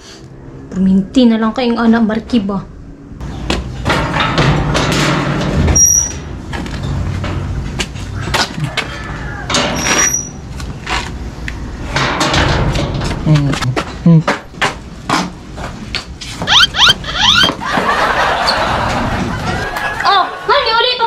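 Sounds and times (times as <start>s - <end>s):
outdoor rumble: 0.2s - 21.0s
metal gate clanking and rattling: 3.7s - 8.5s, 9.4s - 10.5s, 11.9s - 13.3s
short high squeaks: 5.8s - 6.2s, 9.8s - 10.4s, 16.4s - 17.6s.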